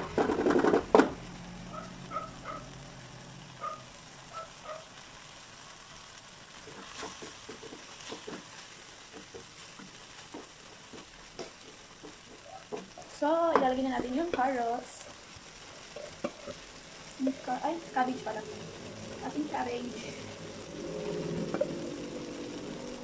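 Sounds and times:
food sizzling in a wok: 0.0 - 23.0
plastic spoon scraping a pan: 6.7 - 14.5
spoon knocking against pan: 9.1 - 14.5.

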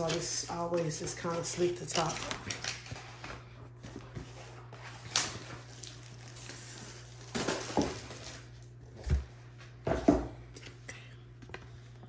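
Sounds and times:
paper and cardboard rustling: 0.0 - 9.3.

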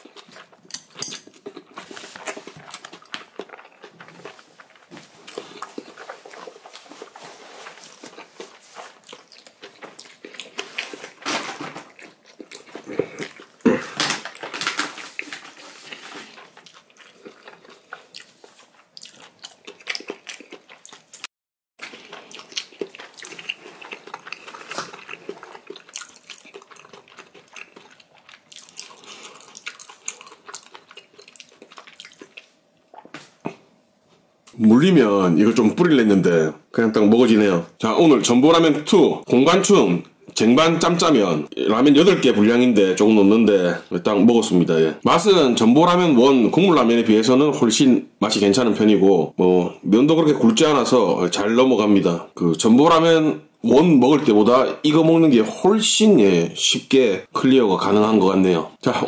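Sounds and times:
noodles slurped and chewed: 21.8 - 33.1.

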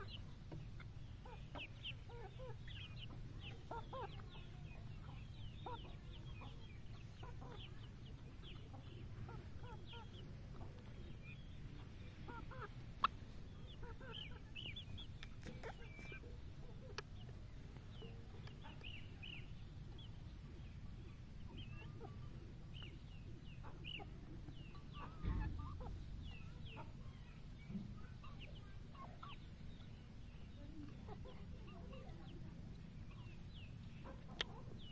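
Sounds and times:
chicks and poults clucking peeping: 0.0 - 34.9
low steady rumble: 0.0 - 34.9
thump: 25.2 - 25.7.

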